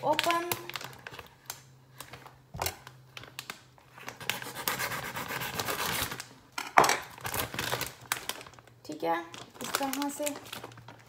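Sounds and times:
plastic bag crinkling: 0:00.0 - 0:04.2, 0:07.1 - 0:11.0.

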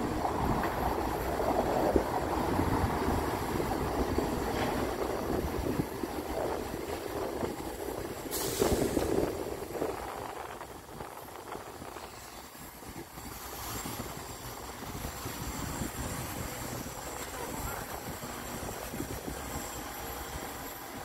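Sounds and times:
city street traffic rumble: 0:00.0 - 0:21.0
short hiss: 0:08.2 - 0:09.4.

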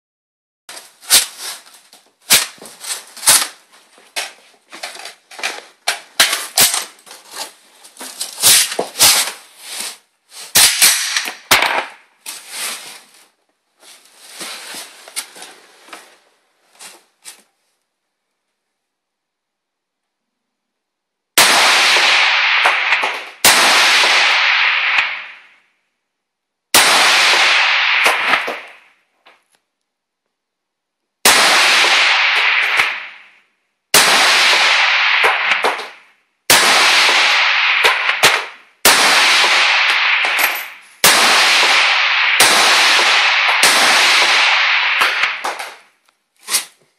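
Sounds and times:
rifle shots with echo: 0:10.6 - 0:12.0, 0:21.4 - 0:25.6, 0:26.7 - 0:29.0, 0:31.2 - 0:45.9.

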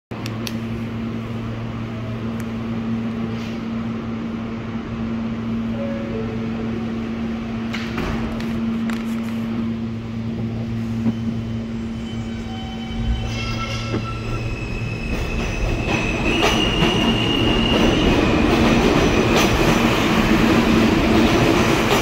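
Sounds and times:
subway car equipment hum: 0:00.1 - 0:22.0
click: 0:00.2 - 0:00.6.

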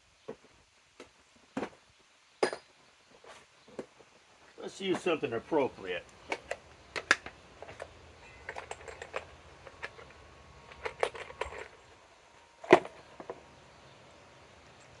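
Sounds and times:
metal hardware clinking: 0:06.2 - 0:13.5.

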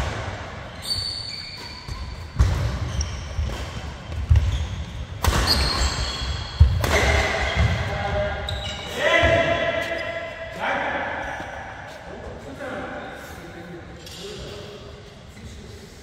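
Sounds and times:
shoes squeaking on court floor: 0:00.5 - 0:10.6
racket hitting shuttlecock: 0:01.6 - 0:07.7.

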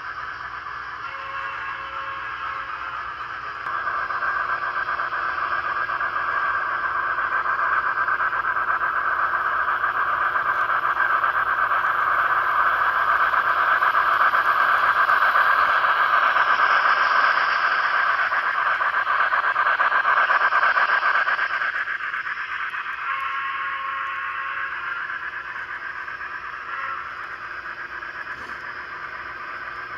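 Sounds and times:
model train whirring hiss: 0:00.0 - 0:29.9.

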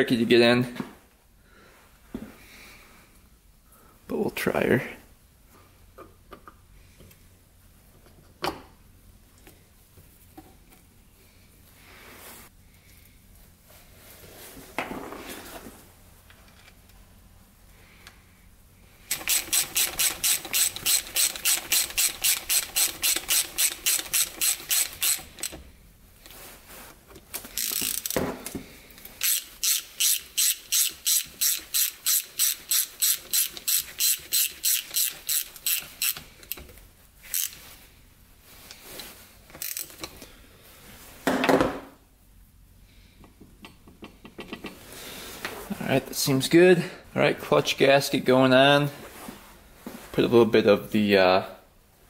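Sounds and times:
ratchet wrench clicking: 0:19.1 - 0:25.6, 0:27.5 - 0:28.2, 0:29.2 - 0:36.7, 0:37.3 - 0:37.6, 0:39.6 - 0:40.1.

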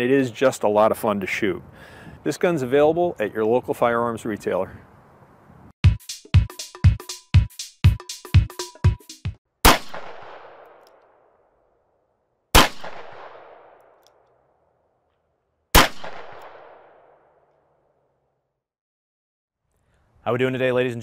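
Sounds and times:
electronic beat music: 0:05.8 - 0:09.4
revolver gunshots with echo: 0:09.6 - 0:10.8, 0:12.5 - 0:14.0, 0:15.7 - 0:17.4.

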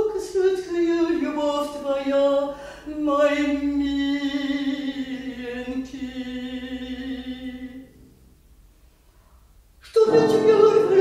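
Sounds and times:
singer breathing: 0:02.5 - 0:02.9
woman singing: 0:09.9 - 0:11.0.

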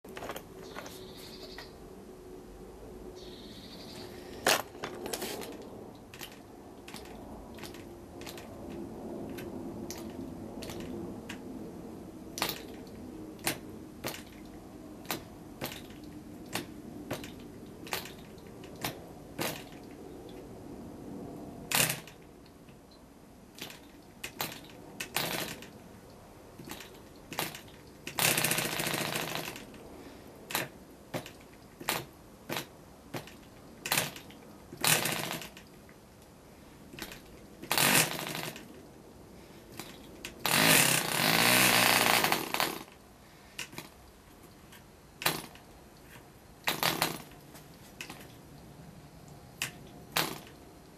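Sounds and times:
propeller flicked by hand: 0:00.1 - 0:01.7, 0:04.4 - 0:11.7, 0:12.3 - 0:20.5, 0:21.7 - 0:22.9, 0:23.5 - 0:25.8, 0:26.6 - 0:29.9, 0:30.5 - 0:35.9, 0:36.9 - 0:38.9, 0:39.6 - 0:43.0, 0:43.6 - 0:48.5, 0:49.6 - 0:50.6
model engine burst: 0:39.8 - 0:42.9.

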